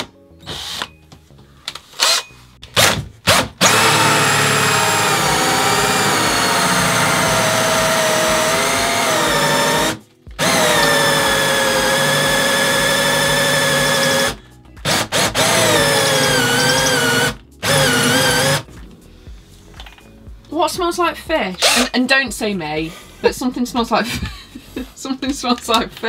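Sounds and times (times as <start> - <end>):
cordless drill drilling into wood: 2.0 - 2.2, 2.8 - 18.7, 21.6 - 21.9.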